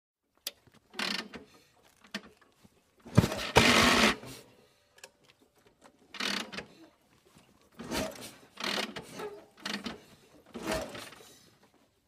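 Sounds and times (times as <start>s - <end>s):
harsh mechanical clatter: 3.1s - 4.2s.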